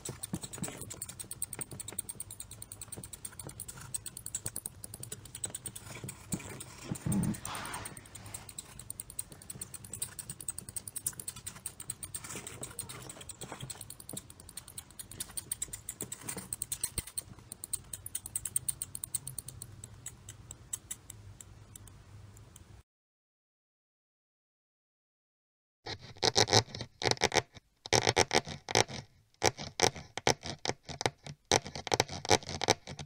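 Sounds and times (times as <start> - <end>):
mouse claws scurrying: 0.0 - 21.1.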